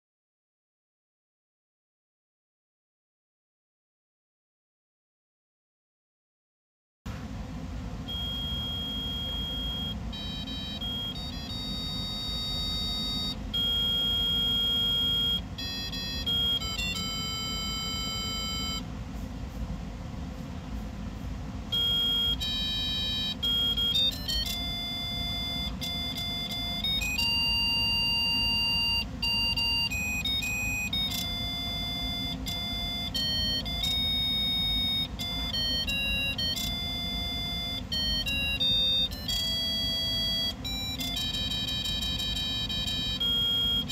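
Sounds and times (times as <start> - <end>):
low hum: 7.1 - 43.9
electronic tone tune: 8.1 - 18.9, 21.7 - 43.9.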